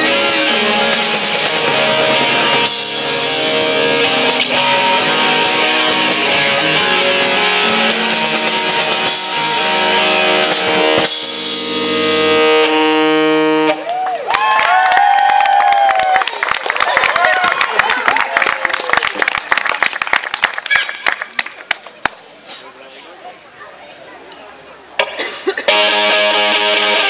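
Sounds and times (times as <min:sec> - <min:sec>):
live rock band playing: 0:00.0 - 0:13.8, 0:25.7 - 0:27.0
crowd shouting: 0:13.8 - 0:18.9.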